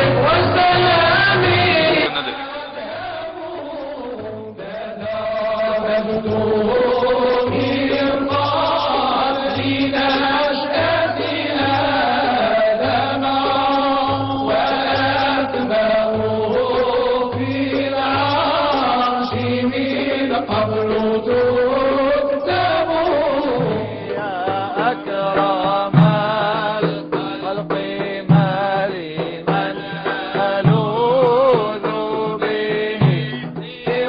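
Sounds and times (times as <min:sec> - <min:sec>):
low rhythmic pulse: 0:00.0 - 0:27.4
devotional chanting: 0:00.0 - 0:34.0.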